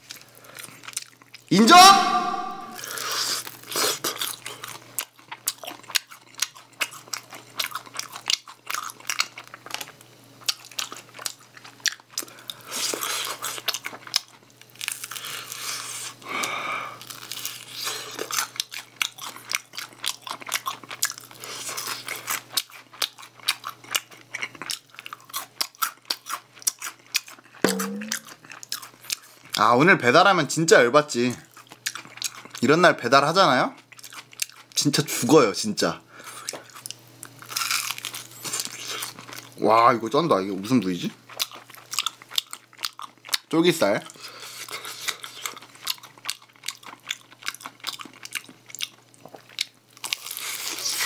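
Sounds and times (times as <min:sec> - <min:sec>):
wet chewing: 0:41.3 - 0:43.5, 0:44.1 - 0:51.0.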